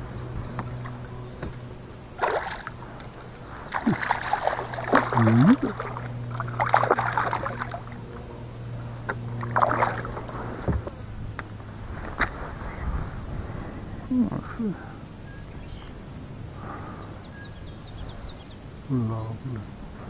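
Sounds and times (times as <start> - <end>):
steady low hum: 0.0 - 20.0
fish splashing in water: 2.2 - 8.1, 9.1 - 10.7.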